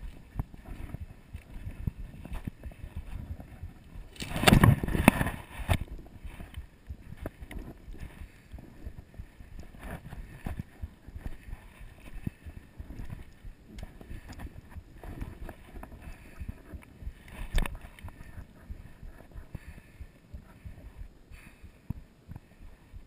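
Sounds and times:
rustling scrape: 0:00.0 - 0:06.6
camera rustling: 0:00.0 - 0:21.0.

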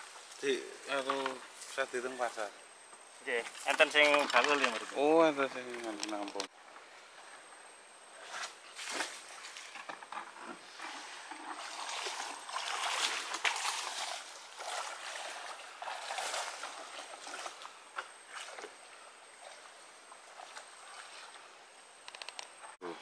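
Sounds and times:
person wading through shallow water: 0:10.8 - 0:21.6.

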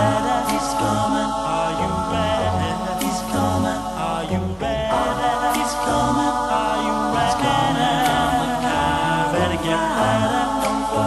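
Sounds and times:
low bass vocal line: 0:00.0 - 0:11.0
vocal group singing harmonies: 0:00.0 - 0:11.0.

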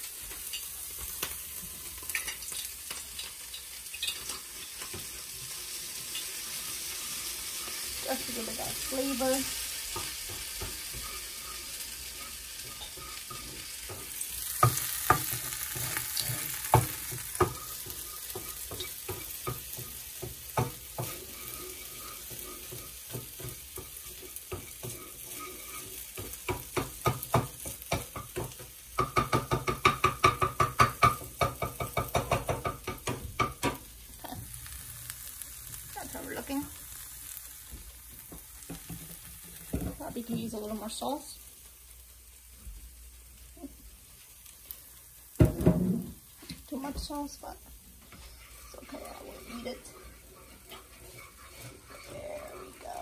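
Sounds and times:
vegetables sizzling in frying pan: 0:00.0 - 0:53.0
utensil scraping pan: 0:06.0 - 0:33.2, 0:48.0 - 0:53.0
utensil knocking on pan: 0:09.9 - 0:11.2, 0:12.2 - 0:21.3, 0:22.3 - 0:25.0, 0:26.2 - 0:33.8, 0:45.4 - 0:46.2.

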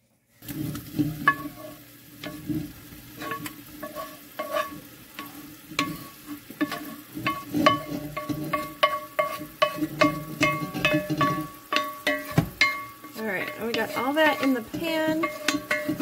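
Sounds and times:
wooden spoon scraping skillet: 0:00.4 - 0:16.0
spoon knocking ringing metal pot: 0:06.6 - 0:16.0.

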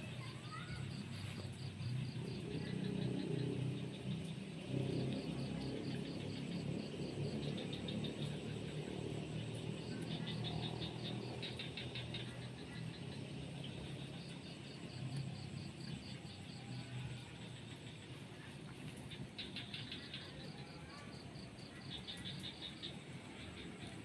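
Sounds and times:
insects chirping: 0:00.1 - 0:24.0.

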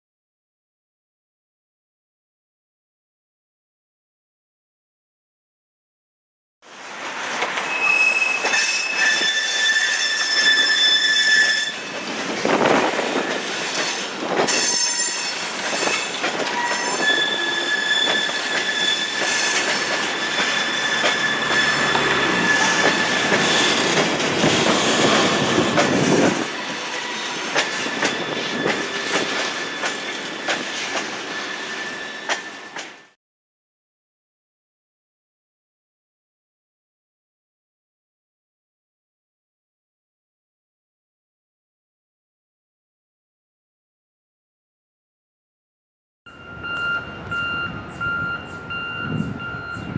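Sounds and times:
rail vehicle running noise: 0:06.7 - 0:33.2, 0:46.3 - 0:49.9
wheels squealing: 0:07.6 - 0:33.1
clicking from rails: 0:15.5 - 0:17.2, 0:18.1 - 0:26.4.

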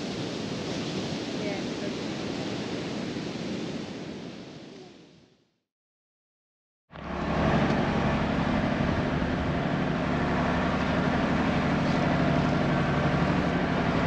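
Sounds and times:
diesel truck engine running: 0:06.9 - 0:14.0.

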